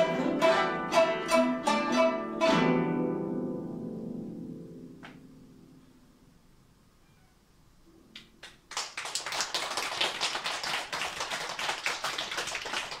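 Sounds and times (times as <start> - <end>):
lone hand claps: 8.2 - 13.0
audience applause: 8.4 - 13.0.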